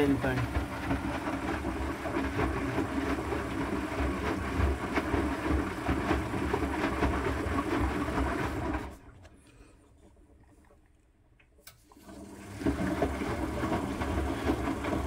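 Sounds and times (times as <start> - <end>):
washing machine drum tumbling: 0.0 - 9.0, 12.3 - 15.0.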